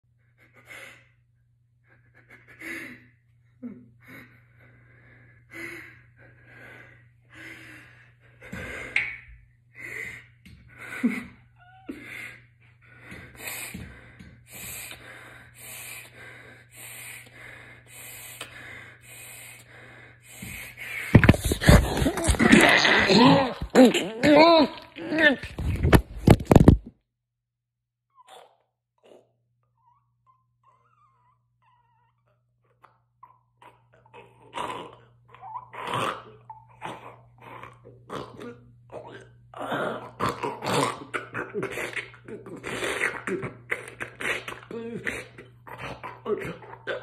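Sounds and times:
heavy breathing and panting: 0.1 - 23.8, 33.6 - 47.0.

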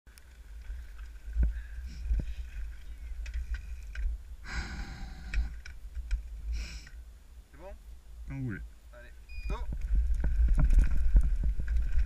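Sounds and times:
mountain bike rumbling on rocky trail: 0.1 - 4.4, 9.7 - 12.0.

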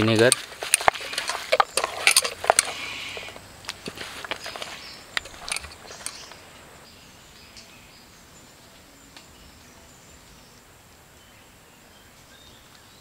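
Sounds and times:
sharp clicks and knocks: 0.0 - 6.4.

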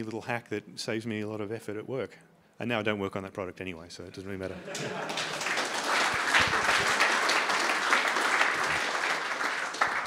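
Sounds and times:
audience applauding: 4.7 - 10.0.

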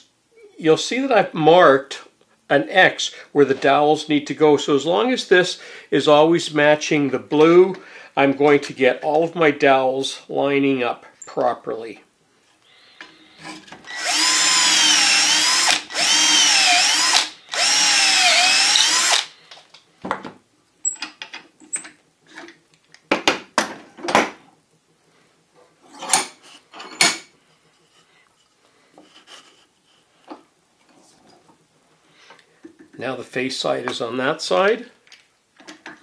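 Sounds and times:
electric drill boring wood: 13.3 - 19.4.

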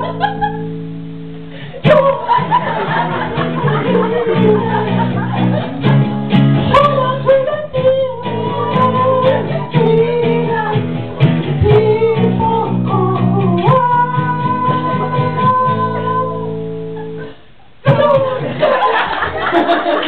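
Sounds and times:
strummed acoustic guitar: 0.0 - 18.7.

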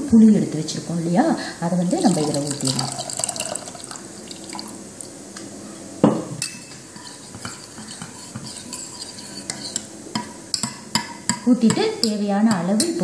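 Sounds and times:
ladle scraping a metal pot: 6.9 - 9.9.

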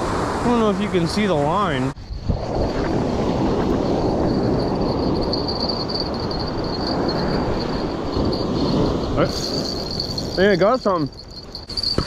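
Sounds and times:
surf rushing: 0.0 - 11.9
wind buffeting microphone: 0.0 - 12.0
insects chirring: 3.4 - 12.0.

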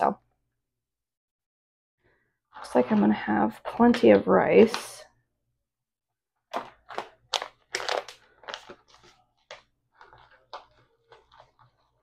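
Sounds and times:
plastic pouch crinkling: 6.5 - 12.0.

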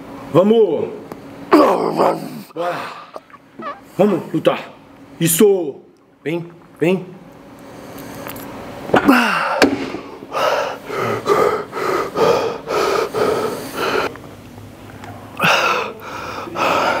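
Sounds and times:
man panting heavily: 9.1 - 14.1, 15.4 - 17.0.

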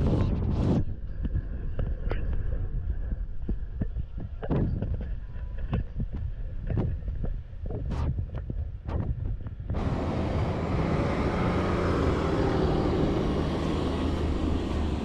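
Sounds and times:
wind rumbling on microphone: 0.0 - 15.0
loud rush of noise: 9.8 - 15.0.

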